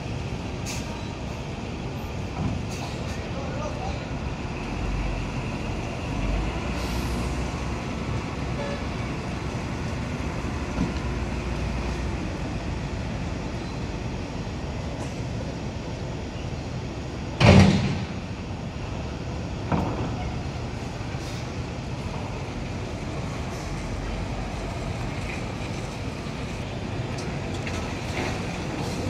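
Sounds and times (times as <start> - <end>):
truck engines rumbling: 0.0 - 29.0
loud thump: 17.4 - 18.2.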